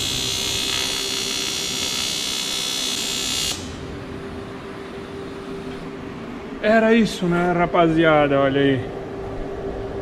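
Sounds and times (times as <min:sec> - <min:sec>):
welding arc buzzing: 0:00.0 - 0:04.0
steady hum: 0:00.0 - 0:10.0.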